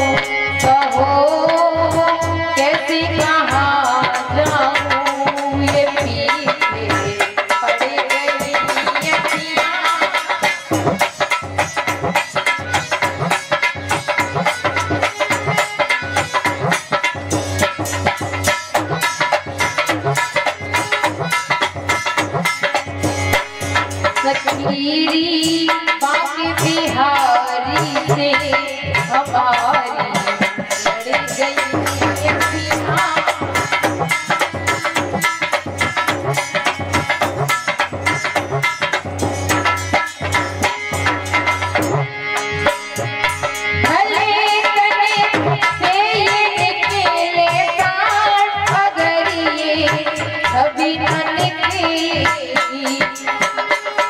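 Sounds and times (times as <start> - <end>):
woman singing: 0.0 - 10.7, 23.7 - 34.4, 43.8 - 53.8
instrumental accompaniment: 0.0 - 54.0
hand drum beat: 2.0 - 42.0, 42.6 - 54.0.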